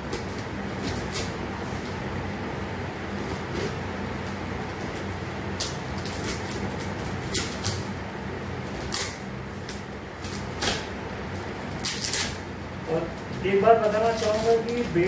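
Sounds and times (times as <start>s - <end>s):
steady low hum: 0.0s - 15.0s
tape and wrapping ripping: 5.5s - 8.0s, 8.7s - 10.9s, 11.7s - 15.0s.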